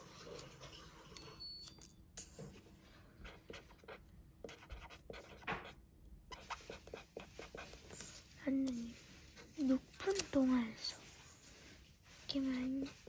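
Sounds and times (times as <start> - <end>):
marker pen scratching on paper: 3.2 - 13.0.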